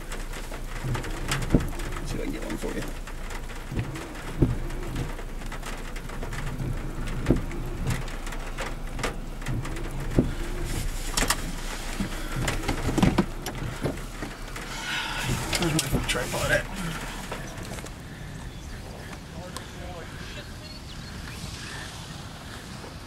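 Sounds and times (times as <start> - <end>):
steady rain: 0.0 - 23.0
wind noise: 0.0 - 23.0
sharp knocks: 3.2 - 10.4.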